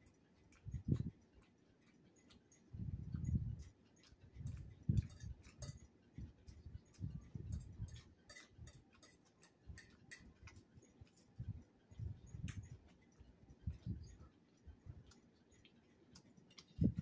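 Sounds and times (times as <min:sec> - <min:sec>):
metal fork tapping a plate: 0:07.5 - 0:11.2.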